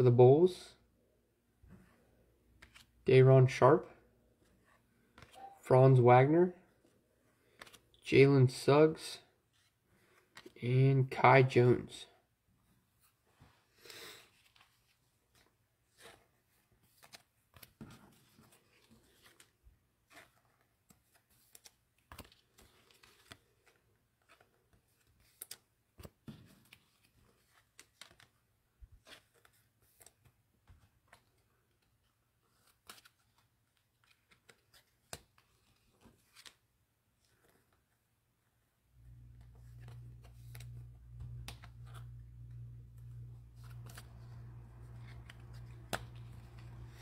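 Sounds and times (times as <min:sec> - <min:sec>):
trading cards clicking and rustling: 0:07.4 - 0:08.0, 0:16.8 - 0:28.4, 0:39.2 - 0:47.0
faint low hum: 0:38.9 - 0:47.0.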